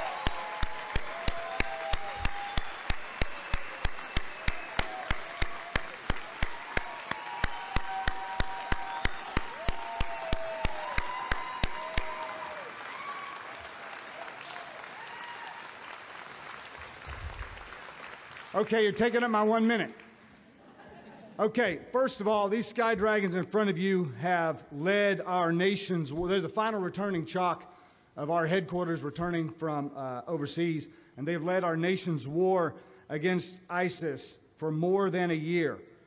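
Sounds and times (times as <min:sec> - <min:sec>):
sharp rhythmic claps: 0:00.0 - 0:13.0
whoops: 0:00.0 - 0:15.8
crowd applauding and cheering: 0:00.0 - 0:19.3.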